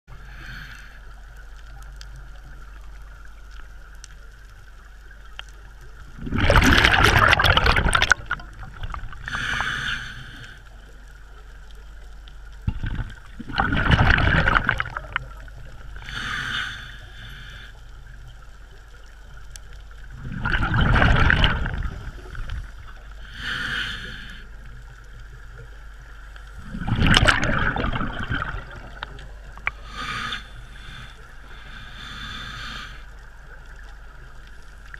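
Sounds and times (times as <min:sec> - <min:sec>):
quiet regulator hiss: 0:00.1 - 0:34.9
exhaled bubbles from diver regulator: 0:06.1 - 0:10.5, 0:12.6 - 0:16.8, 0:20.0 - 0:24.3, 0:26.6 - 0:32.9.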